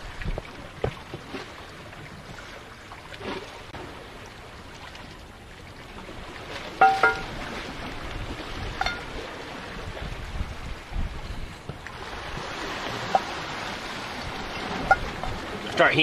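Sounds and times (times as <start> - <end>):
waves washing against rocks: 5.8 - 16.0
wind blowing: 6.0 - 16.0
metal skillet clanking on rock: 6.8 - 7.3.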